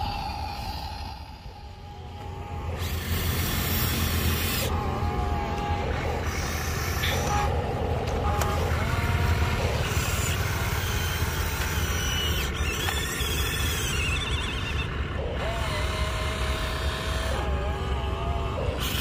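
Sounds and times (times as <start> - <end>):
steady low rumble: 0.0 - 11.7
electric motors whining: 0.0 - 19.0.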